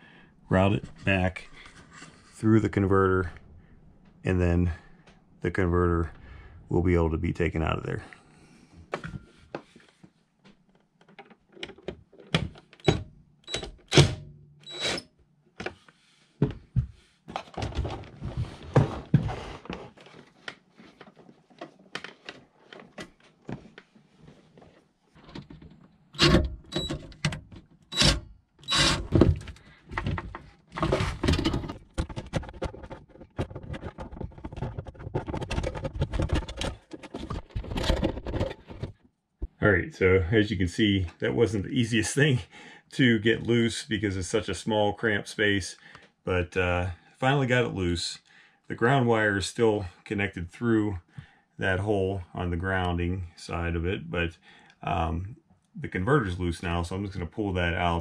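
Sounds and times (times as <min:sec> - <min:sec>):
knocks and rattles of wiring handling: 0:08.9 - 0:14.4, 0:16.4 - 0:24.0, 0:24.6 - 0:28.2, 0:28.9 - 0:39.6.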